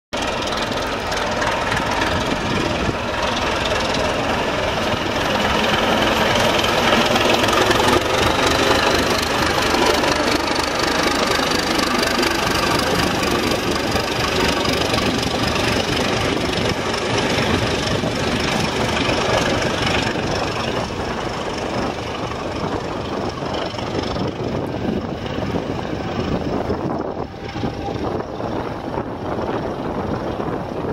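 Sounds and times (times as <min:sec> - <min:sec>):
diesel locomotive engine accelerating: 0:00.1 - 0:30.9.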